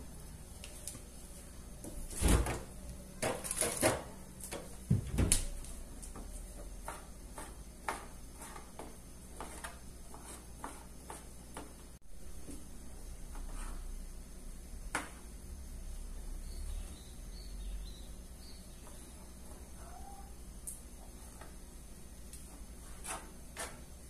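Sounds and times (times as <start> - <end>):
cupboard doors knocking shut: 4.9 - 5.4.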